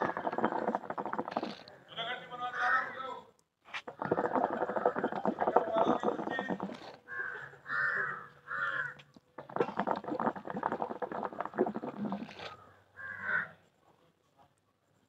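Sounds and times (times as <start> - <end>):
hookah water bubbling: 0.0 - 1.8, 3.8 - 7.0, 9.4 - 12.6
crow cawing: 7.1 - 9.0, 12.6 - 13.6.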